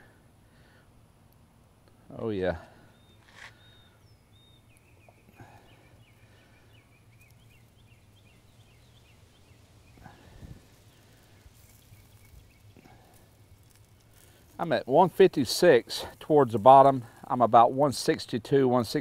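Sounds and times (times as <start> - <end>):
bird chirping: 2.8 - 14.4.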